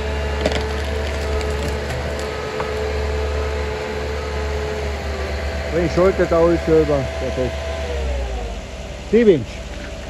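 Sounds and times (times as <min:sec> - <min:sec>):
diesel engine running: 0:00.0 - 0:10.0
sharp clicks and cracks: 0:00.4 - 0:02.7.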